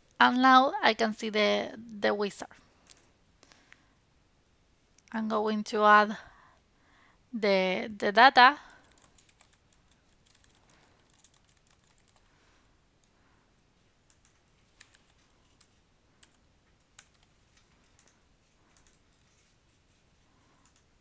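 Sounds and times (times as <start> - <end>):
faint keyboard typing: 2.4 - 3.8, 8.6 - 21.0.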